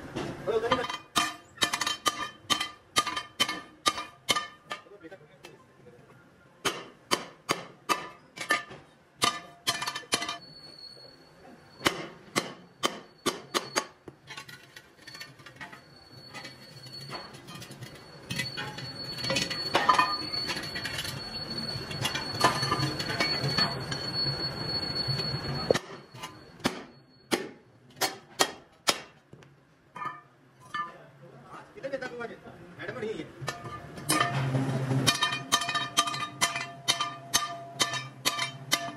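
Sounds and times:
hammer striking steel rim: 0.7s - 5.0s, 6.6s - 10.5s, 11.8s - 14.0s, 25.7s - 29.2s, 33.4s - 38.9s
metal scraping and clattering: 14.2s - 23.8s, 33.4s - 38.9s.

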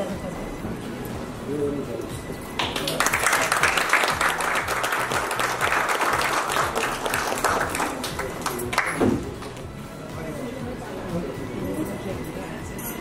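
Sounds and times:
audience applauding: 2.6s - 9.3s.

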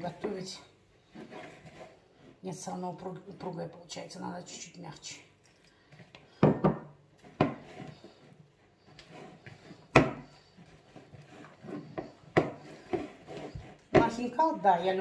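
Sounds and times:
hands kneading dough: 7.1s - 15.0s.

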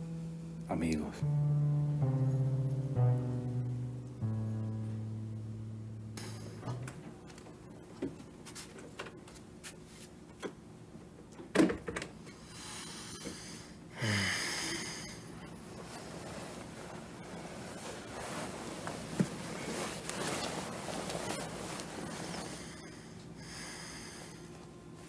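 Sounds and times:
low held music note: 0.0s - 7.1s
breathy rustle: 12.6s - 24.6s.

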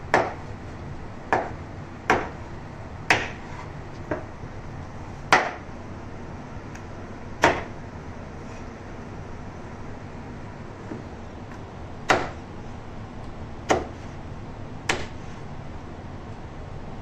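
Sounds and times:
knife chopping on wooden board: 0.1s - 0.5s, 1.3s - 2.5s, 3.1s - 4.3s, 5.3s - 5.6s, 7.4s - 7.7s, 12.1s - 12.4s, 13.7s - 14.1s, 14.9s - 15.4s.

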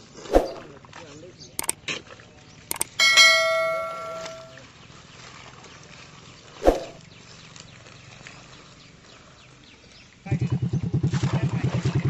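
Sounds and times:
bell chime ringing: 2.7s - 4.6s.

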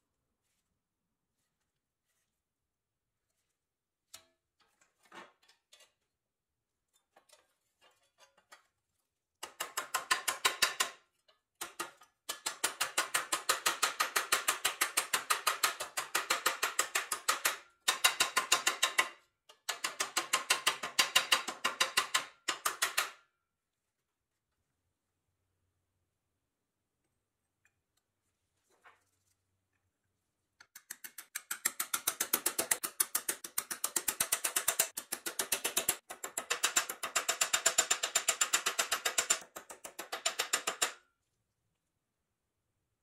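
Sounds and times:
hammer tapping on metal: 30.6s - 41.0s.

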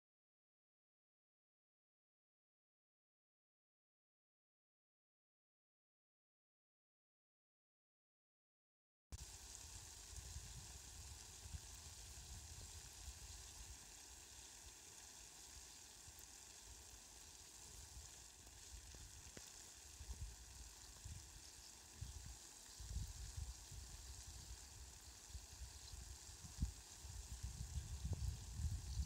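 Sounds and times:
rain falling on grass: 9.2s - 29.0s.

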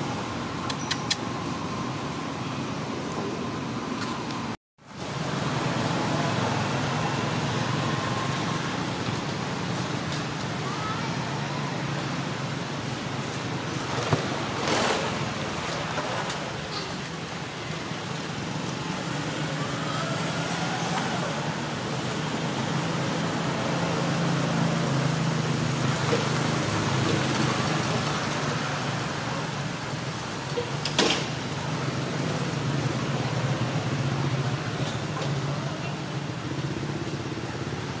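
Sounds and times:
sharp click: 0.6s - 1.3s.

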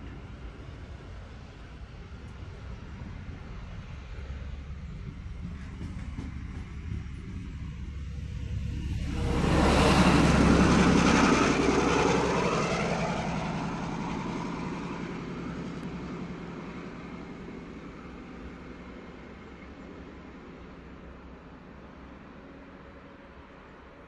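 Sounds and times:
low engine hum: 0.0s - 24.0s
train passing: 0.0s - 24.0s.

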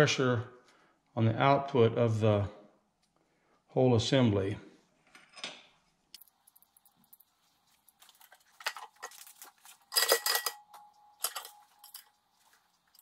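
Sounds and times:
steel parts clinking on a vise: 9.9s - 12.2s.

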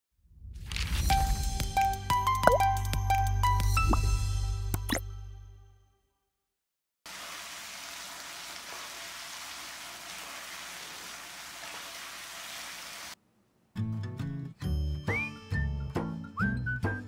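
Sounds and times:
chicken sizzling in wok: 7.1s - 13.2s.

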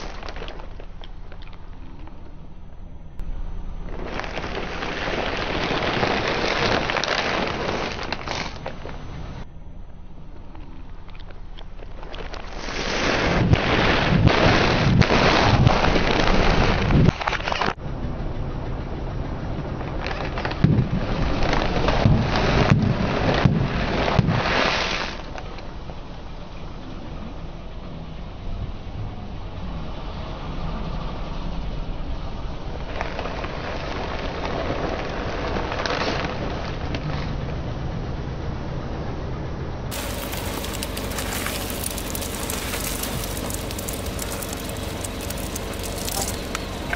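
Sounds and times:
car tyre rolling on asphalt: 3.8s - 9.4s, 17.8s - 46.9s
plastic bags crinkling: 39.9s - 46.9s
plastic packets crackling: 39.9s - 46.9s
snacks crunching: 39.9s - 46.9s.

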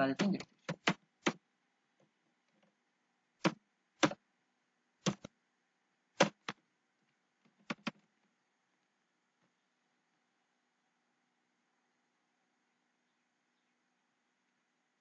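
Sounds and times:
keyboard keys clicking: 0.0s - 1.4s, 7.6s - 8.0s.

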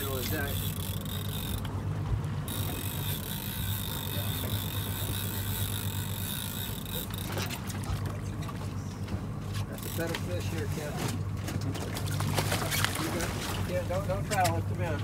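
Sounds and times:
fishing reel gears whining: 0.0s - 1.7s, 2.4s - 7.7s, 9.8s - 10.2s
steady low hum: 0.0s - 15.0s
water lapping at boat: 0.0s - 15.0s.

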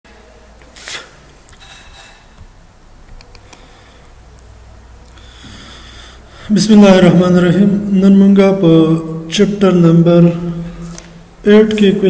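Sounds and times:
low electrical hum: 0.1s - 12.0s
room hiss: 0.1s - 12.0s
computer mouse clicks: 3.1s - 3.7s.

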